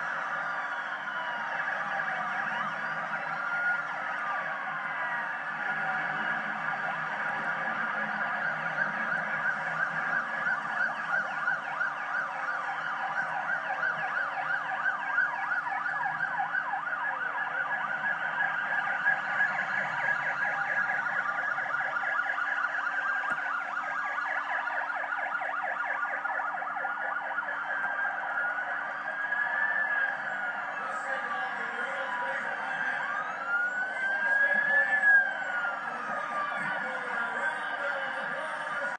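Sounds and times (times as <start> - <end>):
motorcycle sirens wailing: 0.0 - 38.9.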